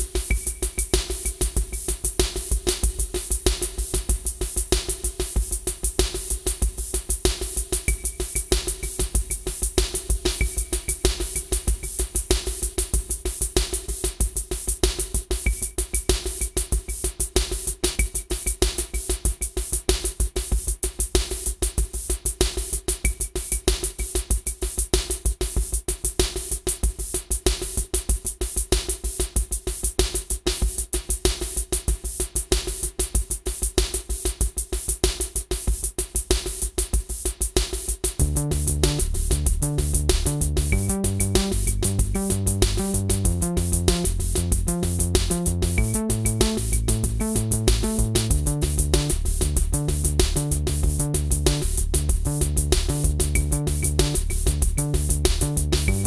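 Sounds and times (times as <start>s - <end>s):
drum-machine beat: 0.0s - 56.0s
synth bass line: 38.2s - 56.0s.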